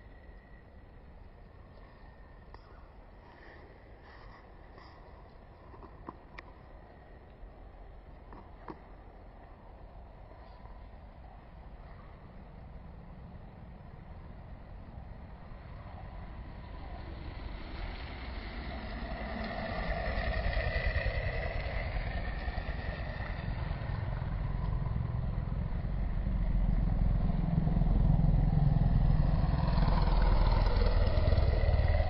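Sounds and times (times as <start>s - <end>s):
motorcycle engine running: 17.1s - 32.0s.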